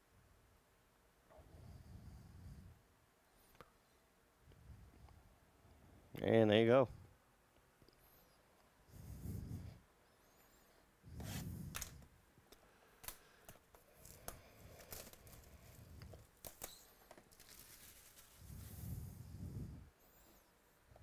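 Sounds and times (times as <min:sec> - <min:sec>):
shrink wrap crinkling: 0:13.0 - 0:18.7.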